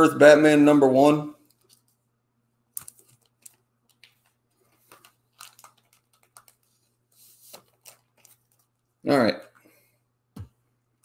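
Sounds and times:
plastic bags crinkling: 2.8 - 6.8.

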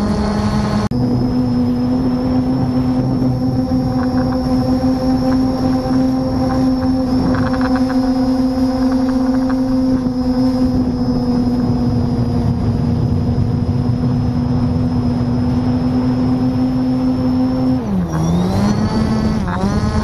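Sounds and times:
drone propellers whining: 0.0 - 20.0.

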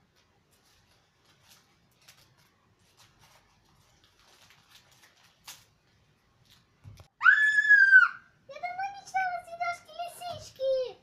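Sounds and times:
packaging crinkling being opened: 0.1 - 7.0.

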